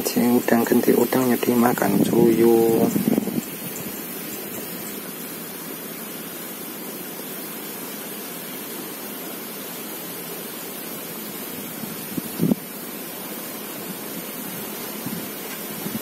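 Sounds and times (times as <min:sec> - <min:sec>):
steady rushing noise: 0:00.0 - 0:05.7, 0:11.4 - 0:16.0.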